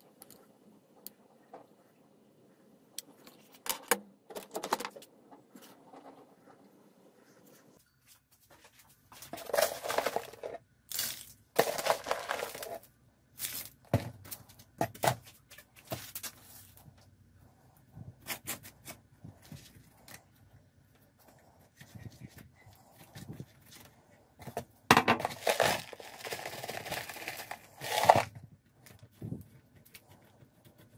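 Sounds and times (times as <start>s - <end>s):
crumbly soil crackles and clicks: 25.3s - 29.5s.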